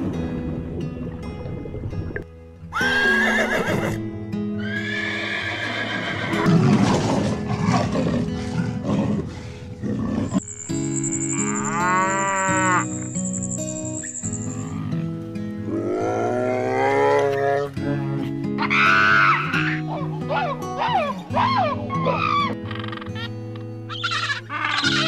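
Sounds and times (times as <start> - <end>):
background music: 0.0 - 25.0
animal calls: 18.6 - 23.3, 23.9 - 25.0.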